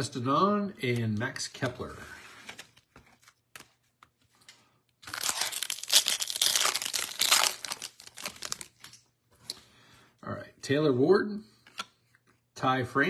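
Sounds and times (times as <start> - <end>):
foil wrapper crinkling: 5.0 - 9.0.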